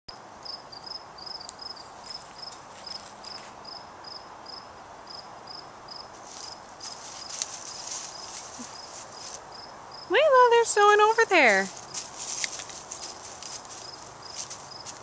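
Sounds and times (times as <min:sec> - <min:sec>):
cricket chirping: 0:00.1 - 0:10.4, 0:11.2 - 0:15.0
light rustling: 0:01.9 - 0:03.6, 0:06.1 - 0:09.5, 0:11.4 - 0:15.0.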